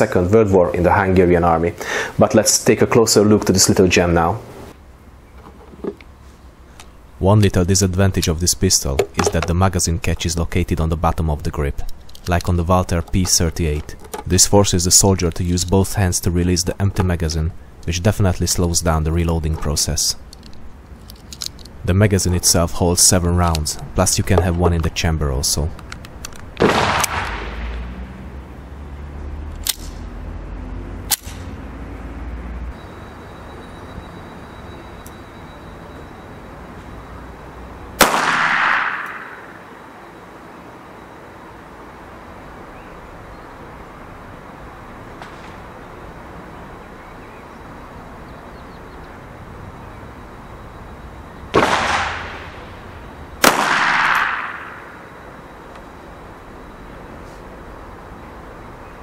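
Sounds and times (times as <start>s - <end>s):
steady low rumble: 6.1s - 28.8s
sharp metallic pistol clicks: 25.7s - 27.4s, 29.5s - 30.0s, 31.1s - 31.5s, 53.4s - 54.9s
pistol shots with echo: 26.6s - 27.7s, 38.0s - 39.6s, 51.5s - 52.6s, 53.4s - 55.0s.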